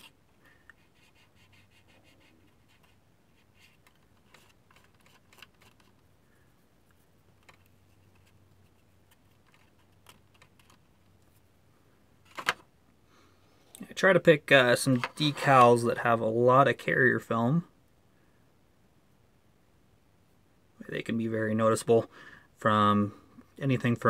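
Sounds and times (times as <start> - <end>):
small tools clicking and scratching: 3.6 - 6.0.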